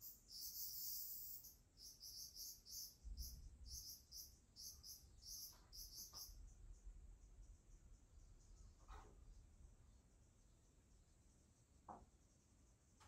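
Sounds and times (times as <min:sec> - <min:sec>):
high-pitched insect chirping: 0:00.0 - 0:06.8.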